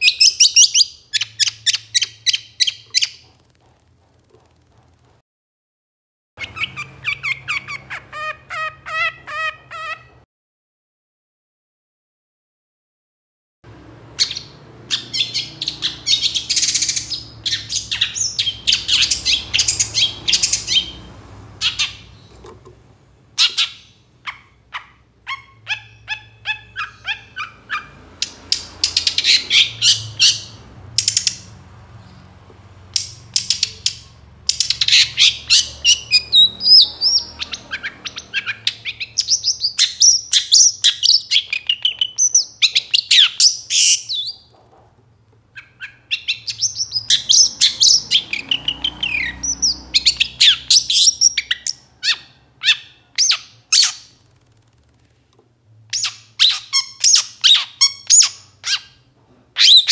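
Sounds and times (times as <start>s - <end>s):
bird warbling: 23.4s - 31.5s.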